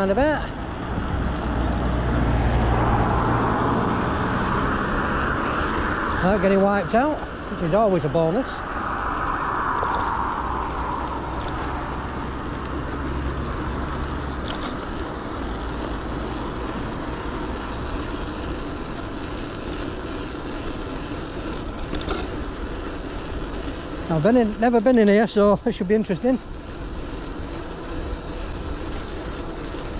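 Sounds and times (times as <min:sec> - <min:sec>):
bike tyre noise on road: 0:00.0 - 0:29.9
wind on microphone: 0:08.4 - 0:13.6.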